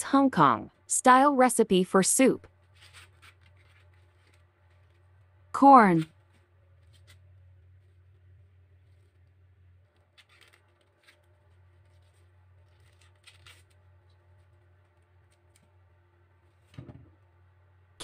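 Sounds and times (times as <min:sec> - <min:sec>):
faint low hum: 0:00.0 - 0:18.0
corn husk rustling and tearing: 0:02.6 - 0:05.1, 0:06.2 - 0:15.8.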